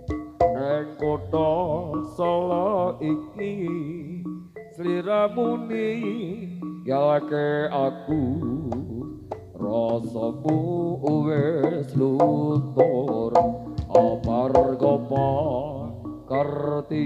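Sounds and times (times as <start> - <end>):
ornamented melodic line: 0.0 - 17.0
hand drum strokes: 8.2 - 16.6.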